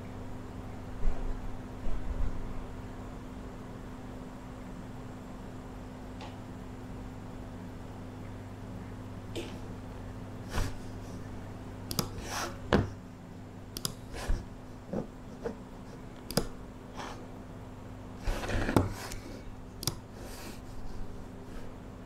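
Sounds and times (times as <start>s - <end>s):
low electrical hum: 0.0s - 22.0s
computer mouse clicking: 11.9s - 12.2s, 13.7s - 14.1s, 16.1s - 16.6s, 19.8s - 20.1s
knocks and rustles on desktop: 12.7s - 13.0s.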